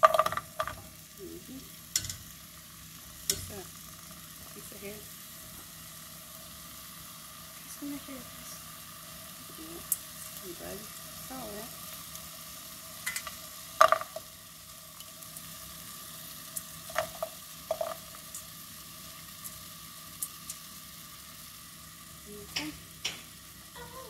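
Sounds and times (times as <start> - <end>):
colander knocking against pan: 0.0 - 0.8, 13.8 - 14.2
low sizzle: 0.0 - 24.0.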